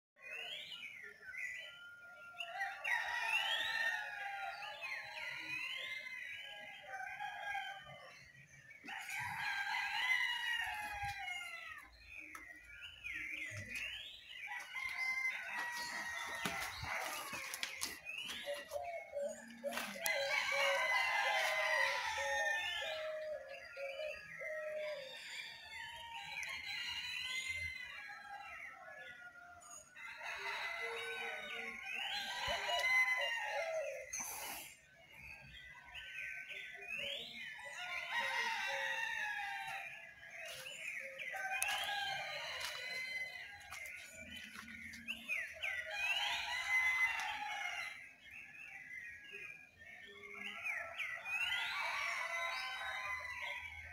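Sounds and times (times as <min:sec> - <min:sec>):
songbirds chirping: 0:00.2 - 0:53.9
rooster crowing: 0:08.9 - 0:11.8, 0:14.5 - 0:17.7, 0:18.8 - 0:23.6, 0:30.0 - 0:34.1, 0:37.7 - 0:40.6, 0:41.3 - 0:44.6, 0:45.8 - 0:48.0.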